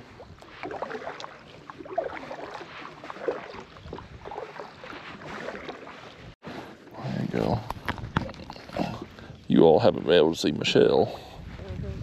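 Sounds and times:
paddle splashing in water: 0.0s - 7.0s.

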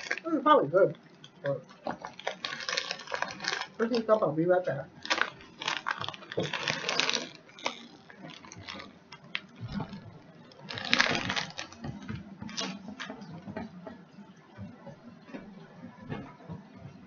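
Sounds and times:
chips crunching: 0.0s - 0.3s, 1.2s - 4.2s, 5.0s - 13.2s
potato chip bag rustling: 0.0s - 0.5s, 1.2s - 4.2s, 4.9s - 13.2s.

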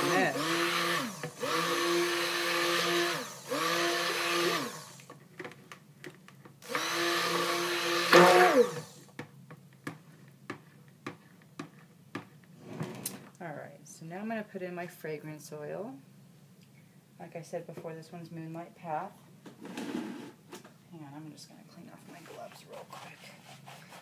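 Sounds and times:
stick blender motor whining: 0.0s - 5.1s, 6.6s - 9.1s.

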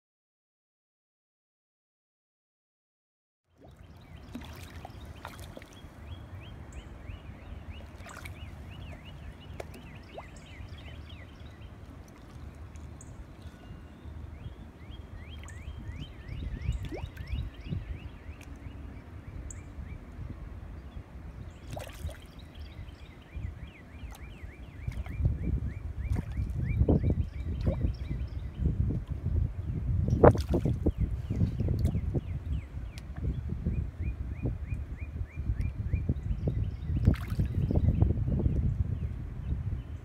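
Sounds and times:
water lapping and dripping: 3.5s - 13.6s, 15.1s - 17.4s, 21.6s - 22.7s, 23.7s - 28.2s, 30.1s - 32.1s, 37.0s - 37.8s.

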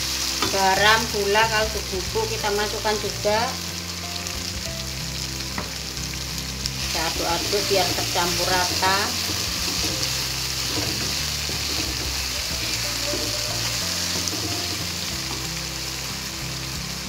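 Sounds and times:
spice paste sizzling in hot oil: 0.0s - 17.0s
wooden spatula stirring: 6.9s - 15.5s.

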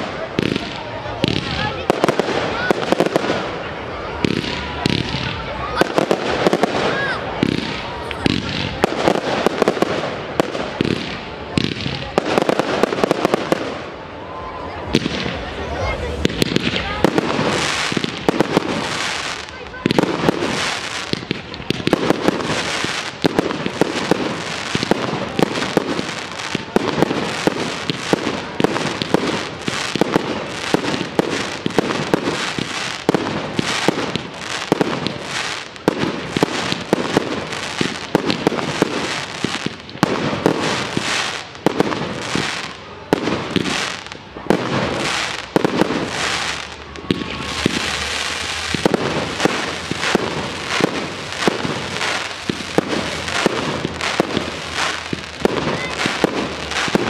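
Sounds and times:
fireworks bursts and bangs: 0.0s - 57.0s
steady noise: 44.3s - 57.0s.

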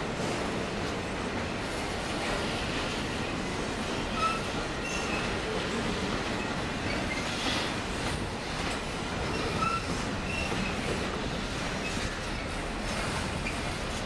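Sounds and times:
freight train wheels rumbling: 0.0s - 14.0s
high wheel squeals: 9.3s - 10.9s.

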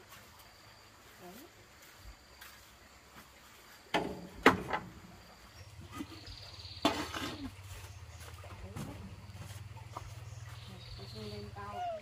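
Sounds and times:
sharp knocks and clatters: 3.9s - 5.0s.

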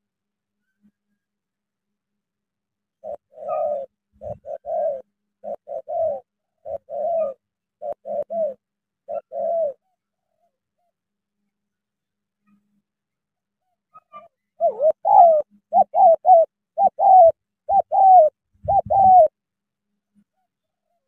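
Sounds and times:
dove cooing: 3.0s - 10.4s, 14.0s - 19.4s.

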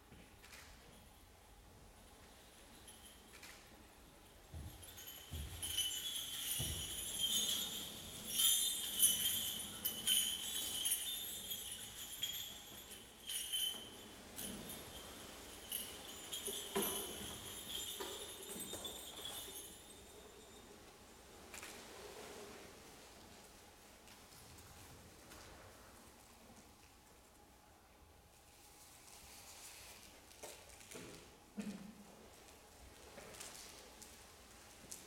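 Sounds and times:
bell trees jingling softly: 0.9s - 21.8s.

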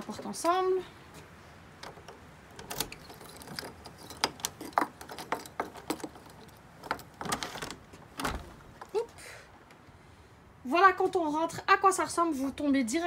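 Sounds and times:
key clicking in door lock: 1.8s - 8.4s
keys jangling: 2.6s - 7.8s.

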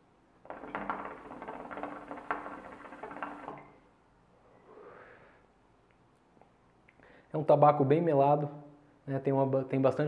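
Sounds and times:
soft exhale: 4.4s - 5.5s.

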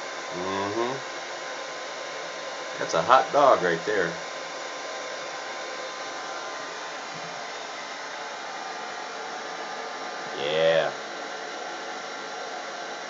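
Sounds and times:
faint motor hum: 0.0s - 13.0s
hair dryer air rushing: 1.1s - 13.0s.

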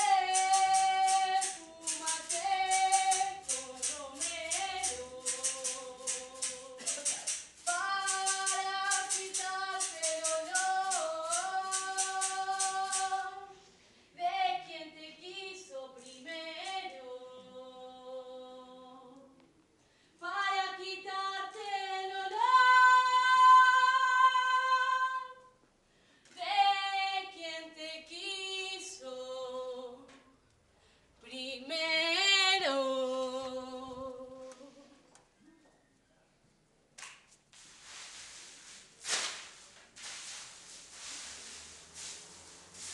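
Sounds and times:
woman singing unaccompanied: 0.0s - 13.6s, 14.2s - 19.4s, 20.2s - 25.5s, 26.4s - 30.3s, 31.2s - 35.0s.

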